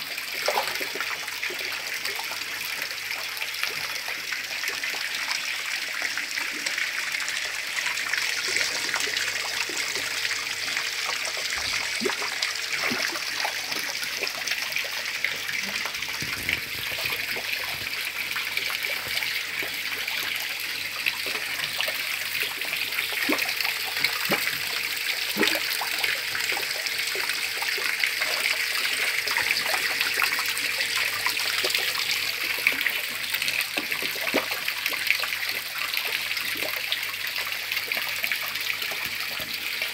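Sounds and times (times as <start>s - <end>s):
trickling water: 0.0s - 39.9s
fish splashing: 23.0s - 27.9s.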